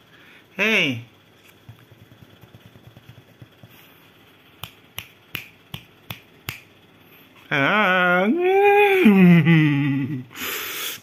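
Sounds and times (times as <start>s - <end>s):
finger snaps: 4.6s - 6.7s.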